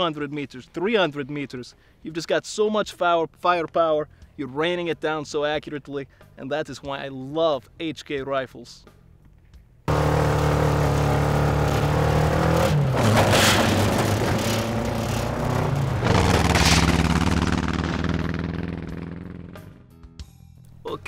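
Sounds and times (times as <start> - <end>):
rushes of noise: 9.9 - 18.8
dune buggy engine running: 9.9 - 19.7.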